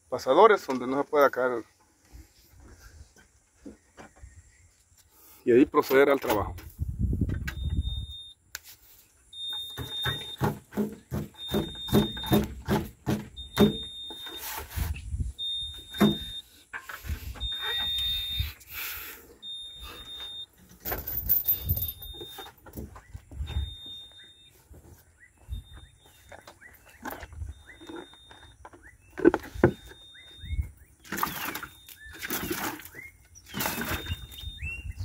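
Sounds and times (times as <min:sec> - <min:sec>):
high-pitched warning buzzer beeping: 0:07.5 - 0:08.4, 0:09.3 - 0:20.6, 0:23.3 - 0:24.7, 0:25.5 - 0:26.4
tractor knocking and rattling: 0:09.4 - 0:14.4, 0:15.7 - 0:18.0, 0:20.0 - 0:24.2.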